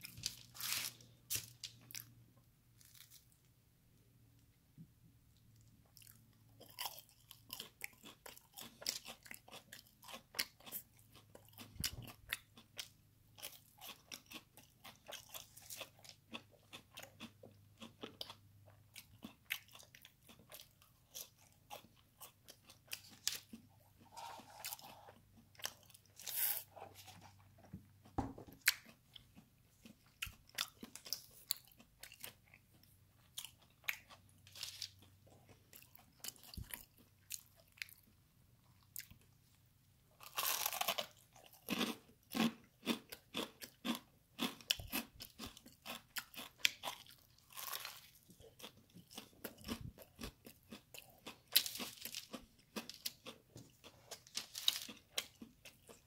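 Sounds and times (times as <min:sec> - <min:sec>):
chewing crispy fried food: 0:05.3 - 0:56.0.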